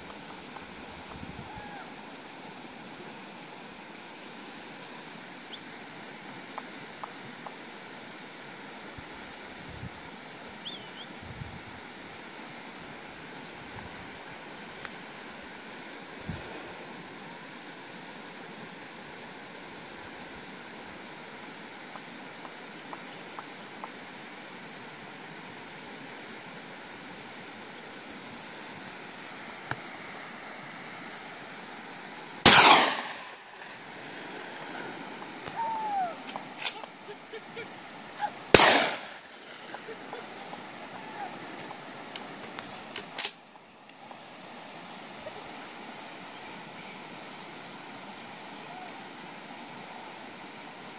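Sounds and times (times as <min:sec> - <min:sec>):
wind hissing over scrub: 0:00.0 - 0:50.9
wavering bird chirp: 0:10.6 - 0:11.1
gunshot: 0:32.5 - 0:33.3, 0:38.6 - 0:39.2.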